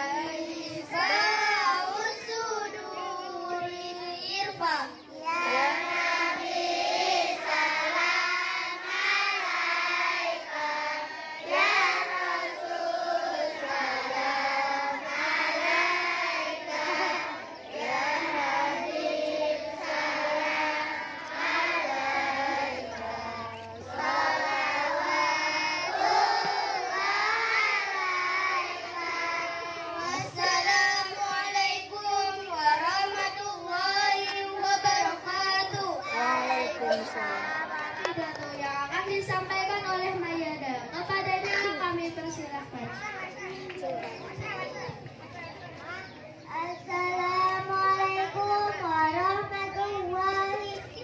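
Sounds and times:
children singing: 0:00.0 - 0:04.6, 0:05.2 - 0:38.2.

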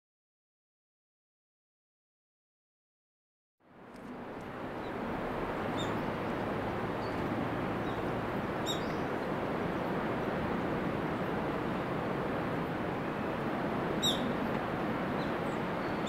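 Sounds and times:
steady outdoor noise: 0:03.6 - 0:16.0
high bird chirps: 0:14.0 - 0:14.3.

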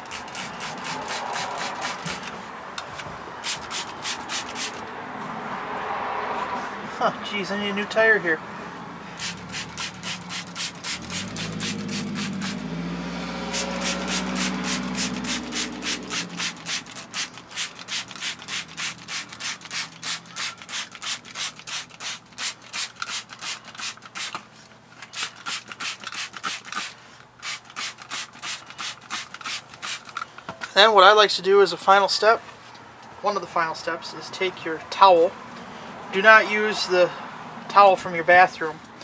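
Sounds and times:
brush scrubbing wet tire: 0:09.2 - 0:12.6, 0:13.5 - 0:24.4.

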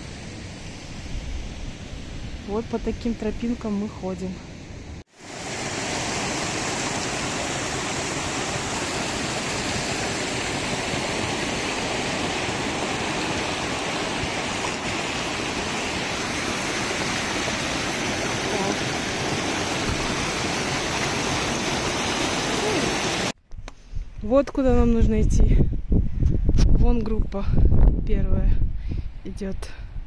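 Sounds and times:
stream rushing over rocks: 0:05.1 - 0:23.4.

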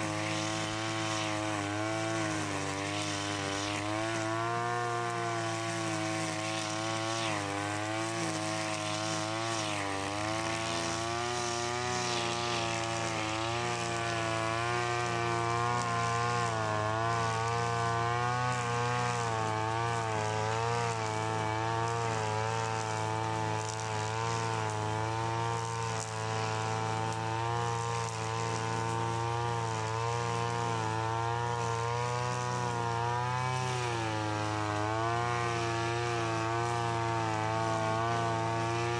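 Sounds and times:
brushcutter engine running: 0:00.0 - 0:38.9
trimmer line cutting grass: 0:00.0 - 0:38.9.

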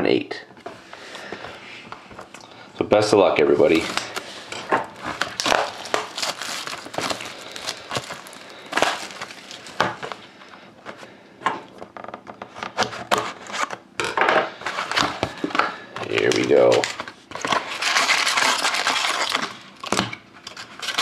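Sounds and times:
plastic shrink wrap crinkling: 0:03.6 - 0:10.5, 0:16.1 - 0:21.0.

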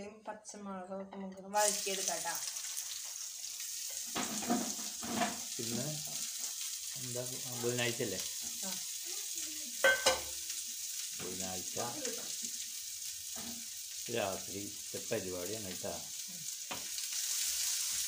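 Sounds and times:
garlic sizzling in hot oil: 0:01.6 - 0:18.0.

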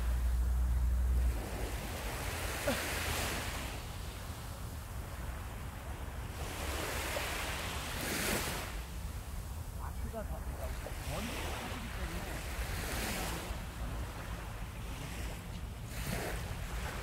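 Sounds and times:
surf breaking on beach: 0:00.0 - 0:17.0
wind rumble on microphone: 0:00.0 - 0:17.0.

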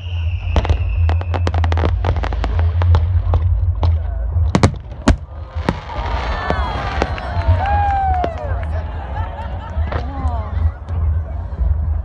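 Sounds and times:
falling firework whistle: 0:00.0 - 0:02.0
steady low rumble: 0:00.1 - 0:12.0
fireworks cracking and crackling: 0:00.2 - 0:08.8
loud fireworks bangs: 0:04.5 - 0:08.4.

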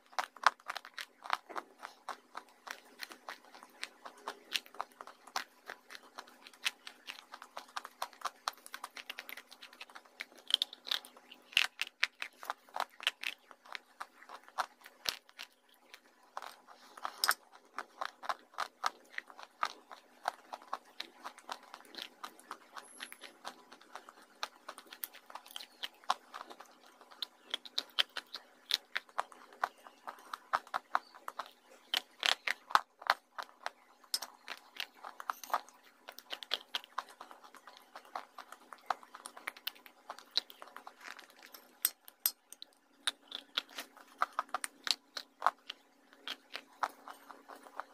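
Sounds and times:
crunching clay: 0:00.0 - 0:47.9
soft chewing: 0:00.0 - 0:47.9.

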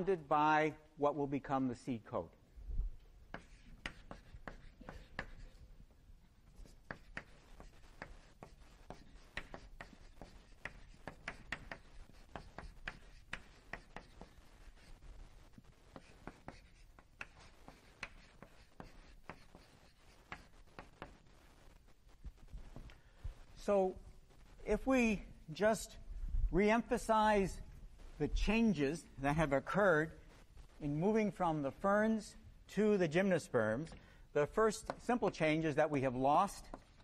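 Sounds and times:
faint handwriting taps and strokes: 0:03.0 - 0:23.7, 0:33.8 - 0:35.7, 0:36.4 - 0:37.0.

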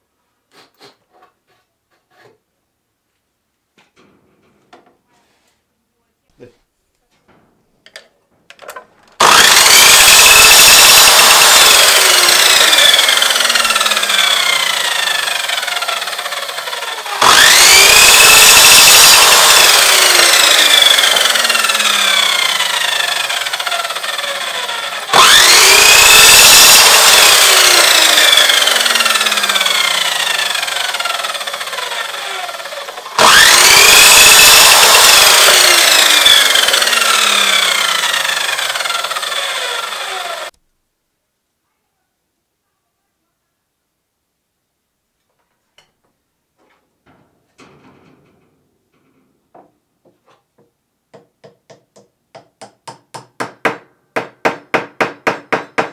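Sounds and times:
mitre saw motor whine: 0:09.2 - 0:40.5
saw cutting wooden dowel: 0:09.2 - 0:40.6.

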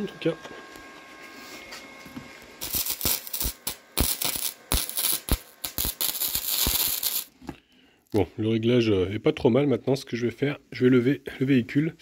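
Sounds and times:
welder arc crackling: 0:02.6 - 0:07.3.

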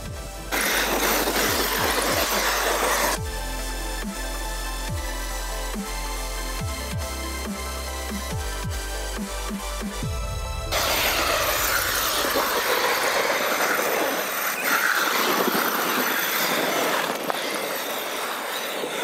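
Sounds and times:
electric motor whining: 0:10.0 - 0:19.0.

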